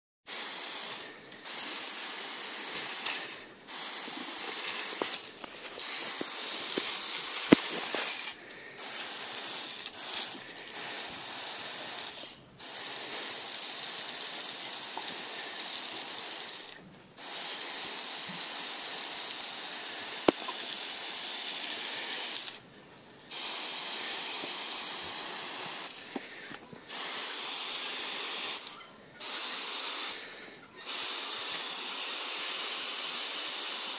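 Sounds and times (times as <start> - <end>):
garden hose nozzle spraying water: 0.3 - 33.9.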